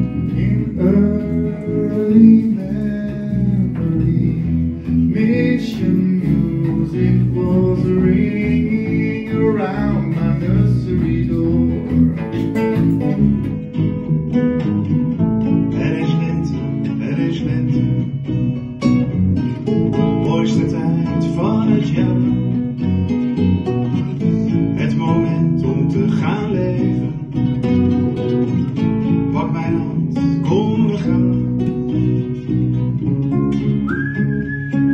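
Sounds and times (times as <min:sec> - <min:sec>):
person singing: 0:00.0 - 0:13.5
acoustic guitars strummed: 0:00.0 - 0:34.9
bass guitar: 0:00.0 - 0:34.9.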